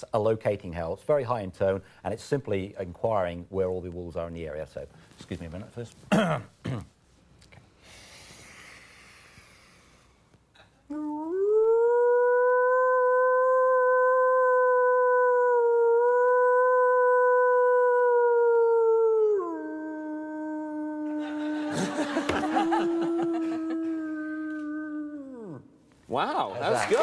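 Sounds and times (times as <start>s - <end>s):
man imitating wolf howl: 10.9s - 25.8s.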